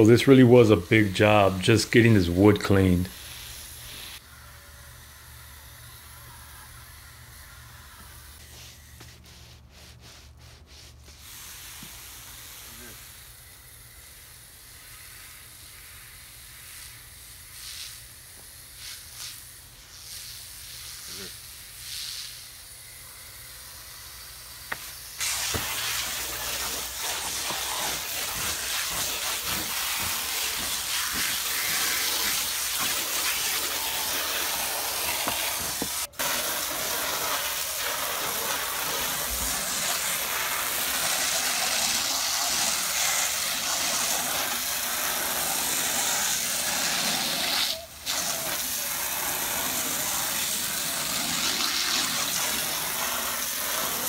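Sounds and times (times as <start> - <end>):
pressure washer jet on wood: 0.0 - 4.2, 5.3 - 23.0, 23.6 - 54.0.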